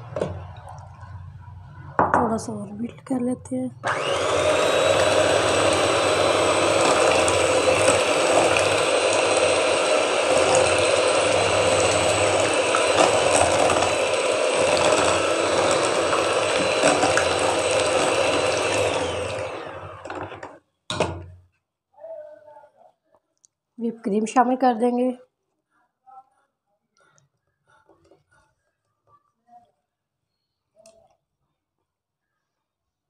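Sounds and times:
electric hand mixer running: 3.8 - 21.2.

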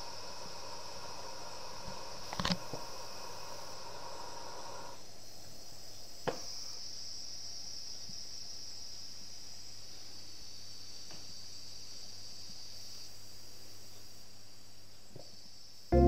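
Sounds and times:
steam hissing: 0.0 - 5.0.

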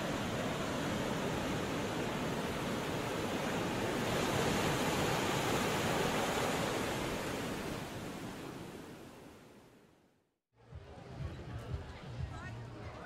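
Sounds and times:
sea waves breaking: 0.0 - 9.7.

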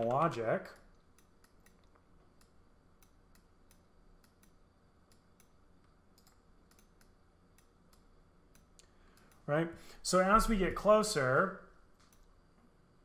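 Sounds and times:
computer mouse clicks: 0.0 - 9.5, 12.0 - 12.3.

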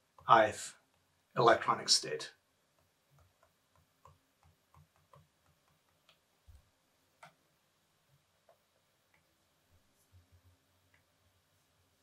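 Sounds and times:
stylus tapping on pen tablet: 2.6 - 6.3.

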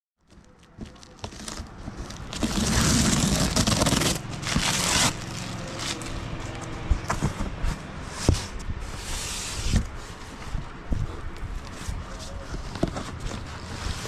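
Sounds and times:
fingers scratching tape: 0.4 - 5.3
packing tape ripping: 0.5 - 6.1.

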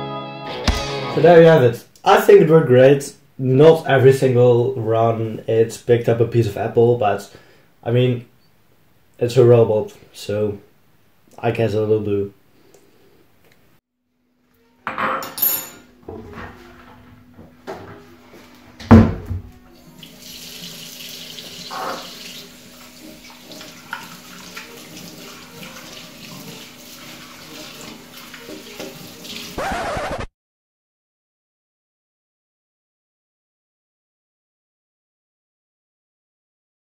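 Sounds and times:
tap water running: 18.4 - 29.6
dishes knocking in metal sink: 18.8 - 19.6.

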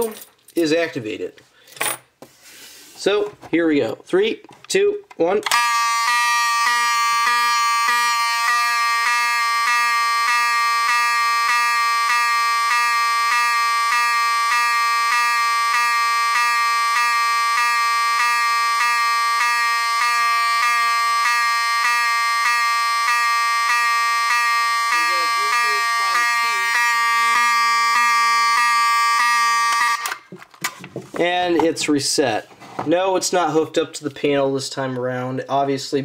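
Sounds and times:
fire alarm horn tone: 5.5 - 30.3.

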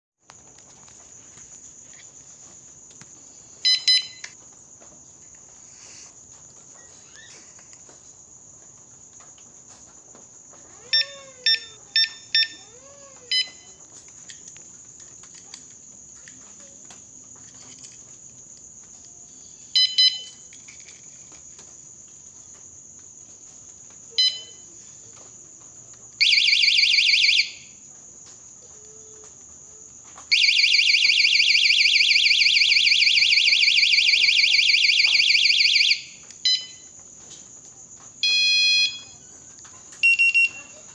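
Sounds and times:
alarm lock beeping: 3.6 - 4.3, 10.9 - 12.6, 13.3 - 13.6, 19.8 - 20.4, 24.2 - 24.6, 26.2 - 27.6, 30.3 - 36.9, 38.2 - 39.2, 40.0 - 40.9
pulsing electronic alarm siren: 26.2 - 27.6, 30.3 - 36.7, 38.2 - 39.2.

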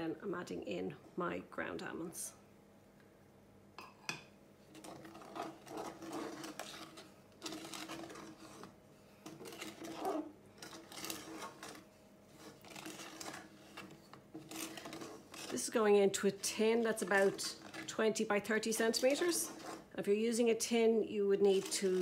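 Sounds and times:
wooden spoon scraping saucepan: 4.6 - 22.0.

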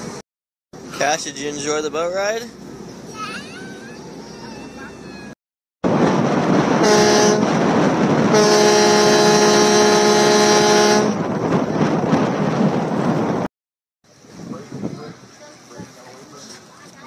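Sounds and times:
loud multi-tone horn: 6.8 - 7.6, 8.3 - 11.2.

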